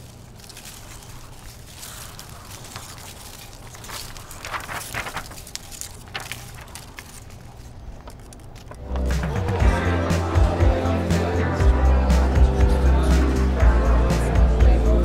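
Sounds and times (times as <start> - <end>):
dry leaves skittering on pavement: 0.0 - 9.8.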